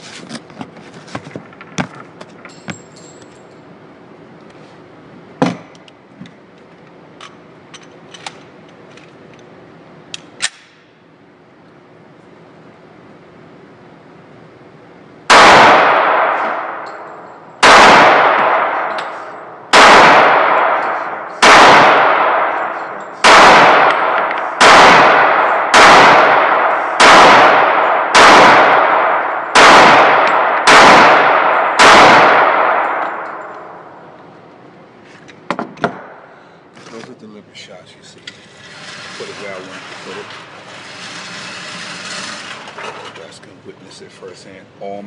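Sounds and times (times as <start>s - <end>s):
gunshots echoing indoors: 15.3s - 34.2s, 35.9s - 36.4s.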